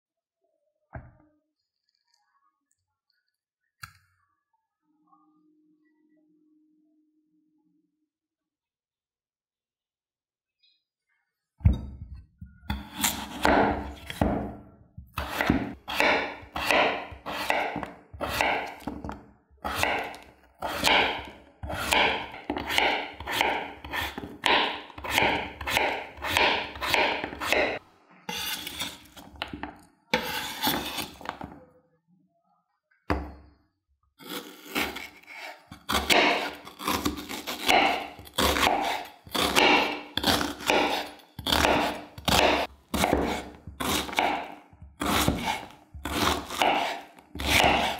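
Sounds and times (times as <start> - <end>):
knife chopping on wooden board: 12.7 - 31.6, 34.3 - 47.9.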